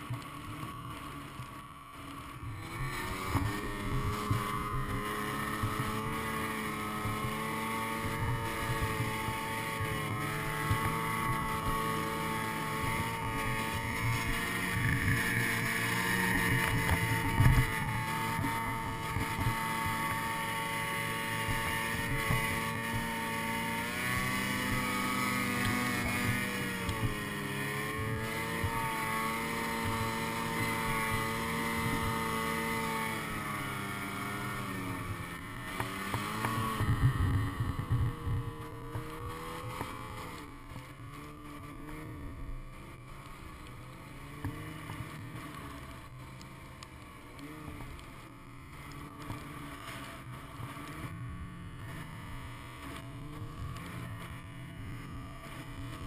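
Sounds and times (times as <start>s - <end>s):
snowmobile engine under load: 0.0s - 56.0s.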